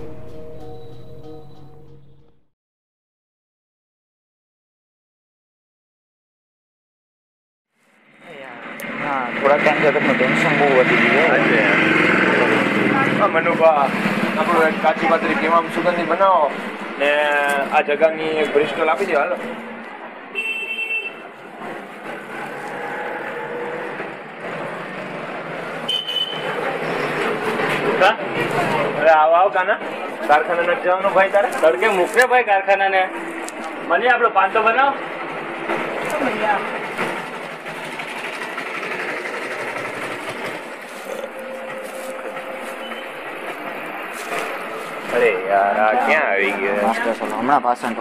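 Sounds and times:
mechanical street noise: 0.0 - 2.4, 7.7 - 48.0
high beep: 0.5 - 2.2
passing traffic hum: 7.7 - 48.0.

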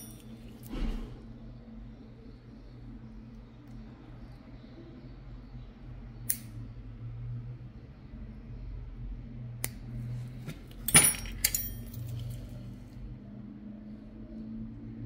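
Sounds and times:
small metal instruments clinking: 0.0 - 0.7, 10.5 - 12.7
steady low hum: 0.0 - 15.0.

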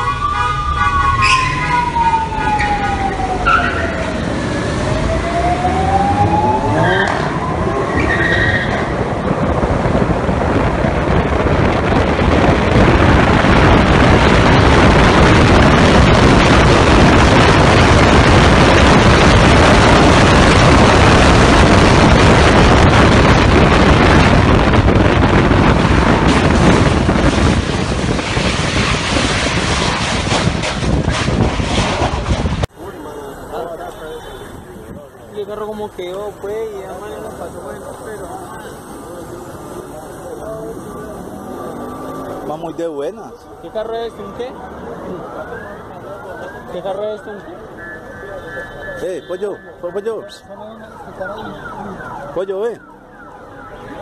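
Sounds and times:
engine tyre and wind noise: 0.0 - 54.0
car engines revving in a tunnel: 3.4 - 10.6.

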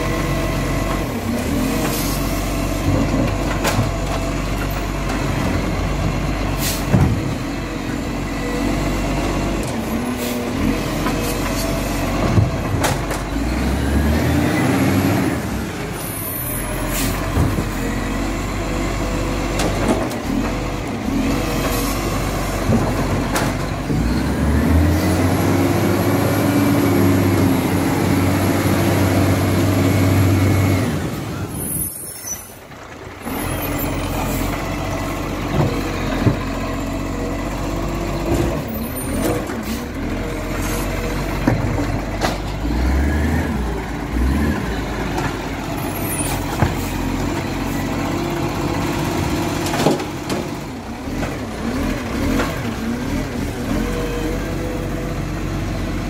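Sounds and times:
garbage truck engine running: 0.0 - 56.0.

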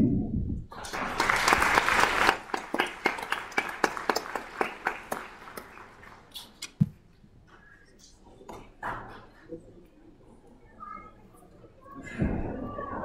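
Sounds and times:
audience applause: 0.7 - 6.3.

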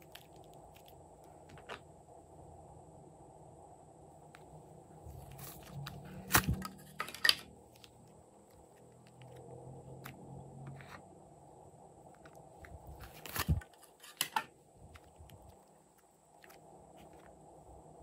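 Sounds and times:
cardboard box crackling: 5.1 - 7.1.

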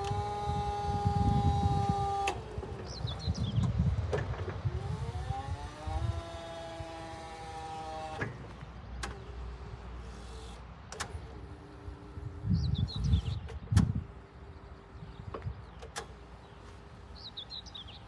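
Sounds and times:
hydraulic pump motor whine: 0.0 - 14.3
sharp clicks: 15.3 - 16.2.

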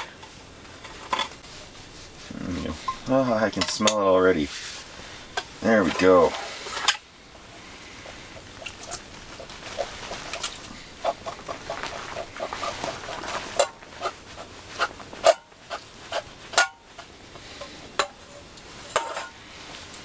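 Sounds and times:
metal clanking on metal: 14.8 - 19.4.

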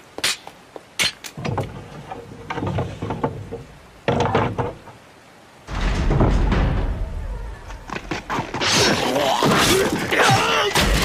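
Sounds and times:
wooden gate opening: 1.3 - 10.2
gate mechanism knocking and rattling: 5.7 - 8.1
horse hooves clopping: 7.7 - 9.1.

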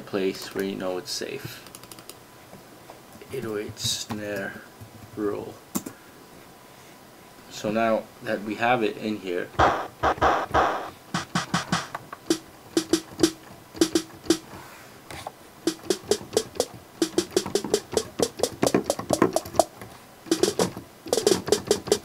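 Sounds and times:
drum machine snare hits: 9.6 - 14.5, 15.6 - 19.7, 20.3 - 22.0.

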